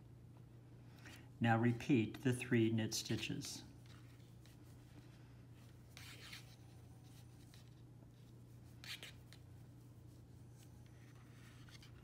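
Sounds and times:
low steady hum: 0:00.0 - 0:12.0
yarn scratching on knitting needles: 0:05.8 - 0:12.0.

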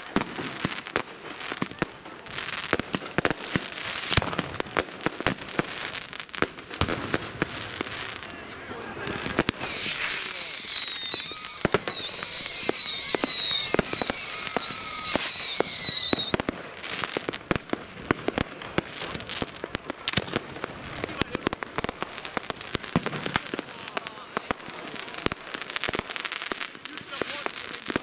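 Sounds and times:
firecracker bangs and cracks: 0:00.0 - 0:08.0, 0:09.2 - 0:28.0
fireworks whistling: 0:00.0 - 0:28.0.

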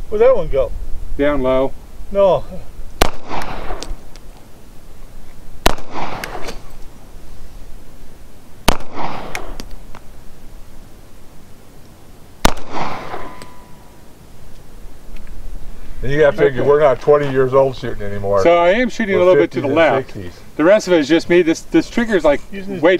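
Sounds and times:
pistol shots with echo: 0:03.0 - 0:04.0, 0:05.6 - 0:06.6, 0:08.6 - 0:09.7, 0:12.4 - 0:13.8.

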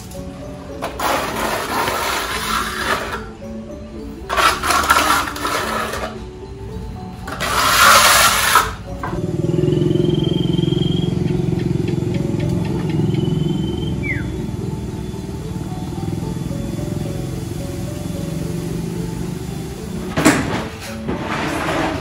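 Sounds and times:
trowel scraping cement on wall: 0:00.8 - 0:03.3, 0:04.3 - 0:06.2, 0:07.3 - 0:08.9.

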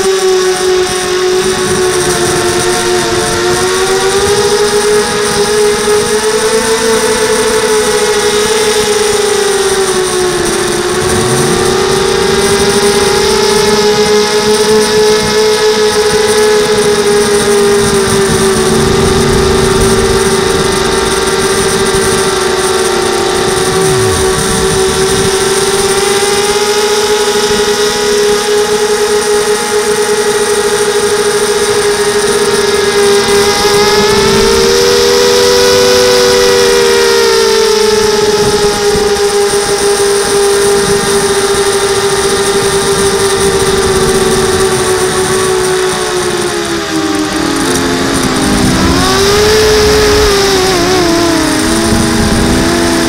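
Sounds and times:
drone motors whining: 0:00.0 - 0:53.0.

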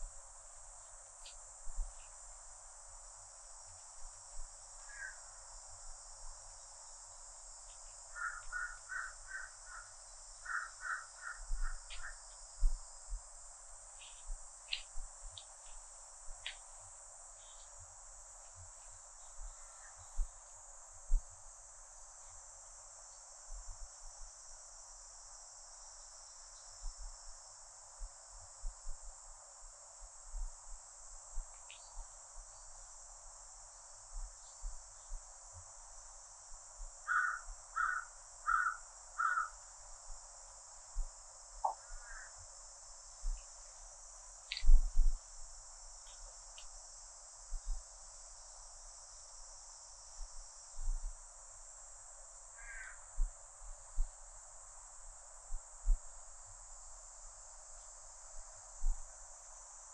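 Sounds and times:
cicadas droning: 0:00.0 - 0:59.9
bird calling: 0:08.2 - 0:09.9, 0:10.5 - 0:12.2.

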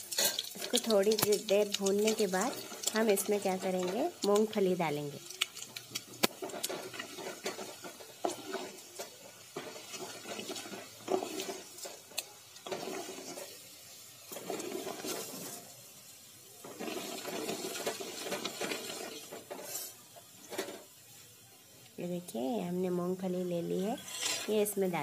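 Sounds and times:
hot oil sizzling in a pot: 0:00.0 - 0:25.0
wooden spatula scraping a pot: 0:06.4 - 0:13.6, 0:14.3 - 0:15.7, 0:16.6 - 0:20.8, 0:23.9 - 0:24.7.

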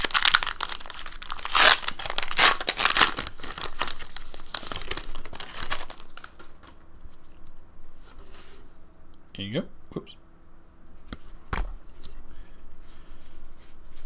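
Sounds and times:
cards rustling and ticking: 0:00.0 - 0:06.8
foil wrapper crinkling and tearing: 0:00.0 - 0:06.8.

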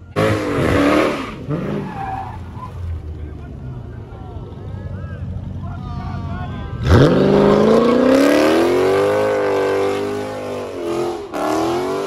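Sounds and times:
car engine revving: 0:00.0 - 0:02.2, 0:06.8 - 0:12.0.

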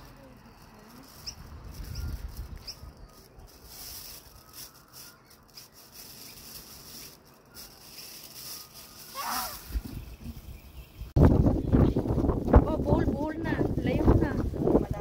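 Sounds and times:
low wind rumble: 0:00.0 - 0:15.0
wavering call: 0:08.5 - 0:09.8
faint short calls: 0:08.6 - 0:09.9.

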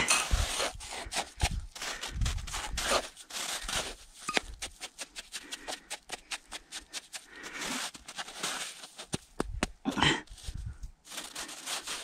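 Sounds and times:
snow crunching and scraping: 0:00.0 - 0:09.4, 0:10.2 - 0:12.0.

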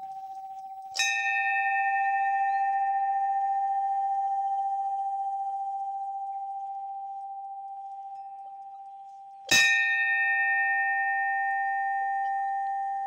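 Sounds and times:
temple bell ringing: 0:00.0 - 0:13.0.

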